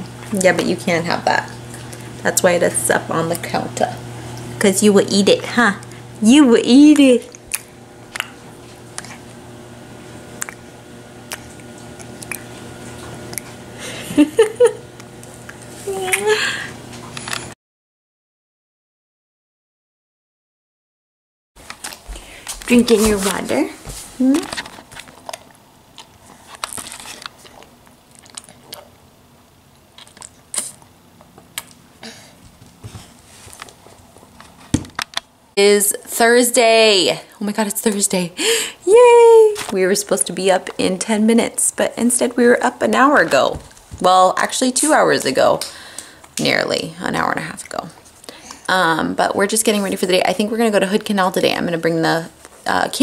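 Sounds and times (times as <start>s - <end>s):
baby chewing a cracker: 11.3s - 13.5s, 24.6s - 29.0s, 29.9s - 31.8s
person laughing: 13.8s - 14.9s, 16.1s - 16.8s.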